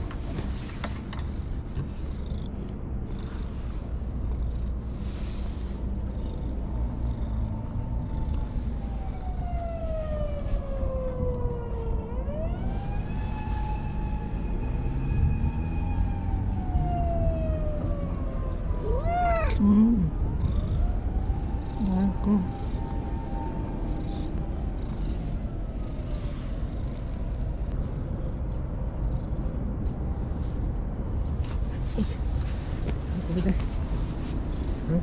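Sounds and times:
cat purring: 1.6 - 9.6, 18.8 - 30.5
siren wailing: 7.5 - 26.2
cat meowing: 18.8 - 19.6.

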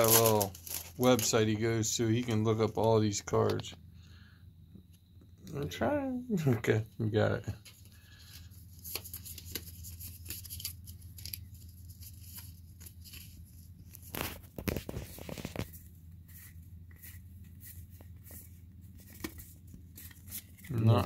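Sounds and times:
card shuffling rustle: 0.0 - 1.5, 7.6 - 21.0.

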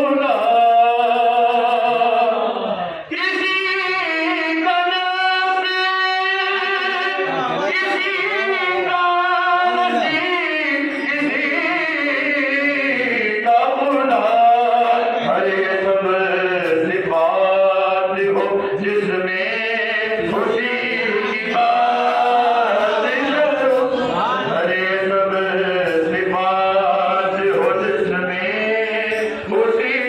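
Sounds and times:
men chanting together: 7.1 - 30.0.

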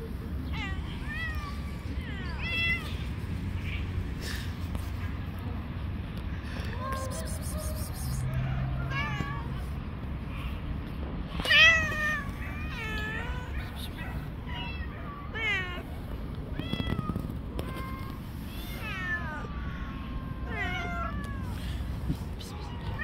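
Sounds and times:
cats meowing: 0.5 - 4.0, 6.6 - 9.8, 11.4 - 23.0.

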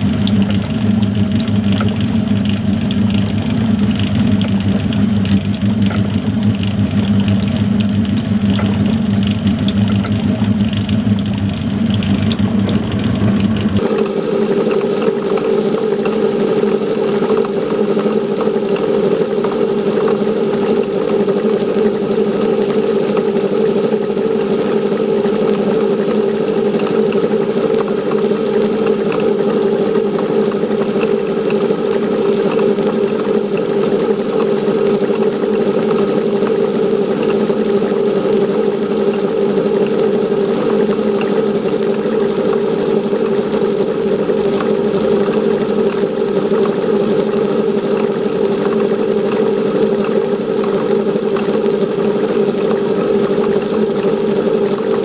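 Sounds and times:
metal lathe running: 0.0 - 55.0
lathe cutting metal: 11.4 - 40.6.

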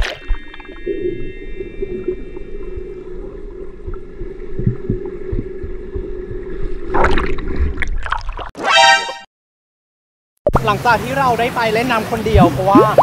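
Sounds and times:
swimmer splashing and bubbles: 0.0 - 2.1, 3.6 - 8.5, 12.4 - 13.0
underwater rumble of moving water: 0.2 - 8.0.

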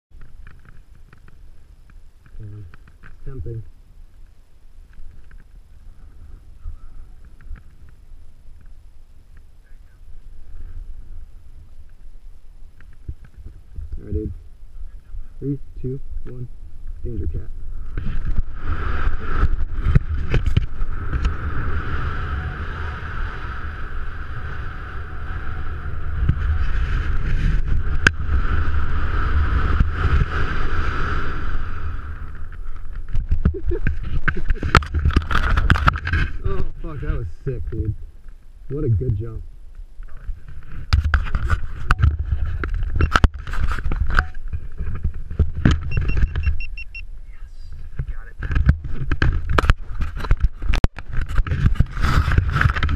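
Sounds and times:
wind rushing over microphone: 9.6 - 52.9
wind whistling: 16.0 - 37.3
camera handling rustling: 32.6 - 36.4
two-tone electronic beeps: 44.1 - 44.4, 45.9 - 47.1.

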